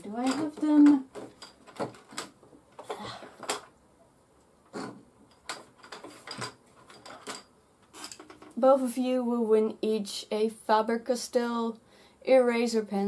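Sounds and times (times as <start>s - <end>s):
plastic drawers clicking and knocking: 0.1s - 3.7s, 4.7s - 7.5s.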